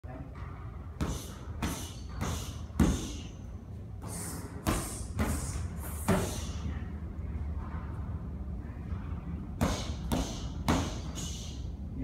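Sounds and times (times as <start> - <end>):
gloved punches on pads: 9.6 - 11.2.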